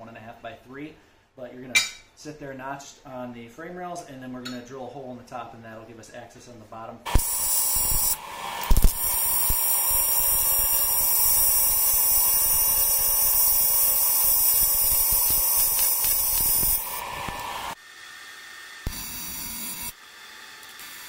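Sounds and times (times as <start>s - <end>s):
welder striking clicks: 7.1s - 17.7s
welding arc buzzing: 7.1s - 17.8s, 18.7s - 21.0s.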